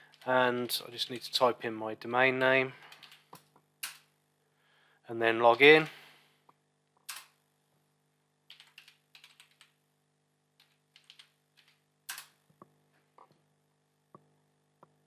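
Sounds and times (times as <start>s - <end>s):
keyboard typing: 2.8s - 4.0s, 8.5s - 9.8s, 10.6s - 12.4s.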